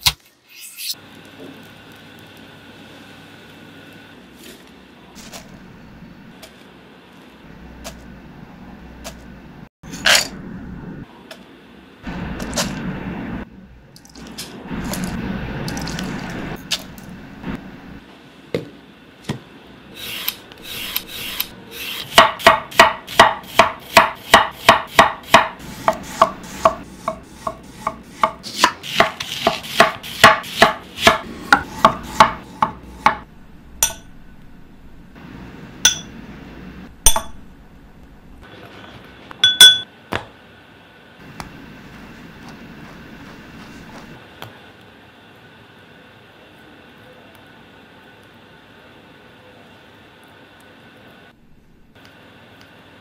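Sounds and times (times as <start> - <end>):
knife slicing onion on board: 21.8 - 33.2.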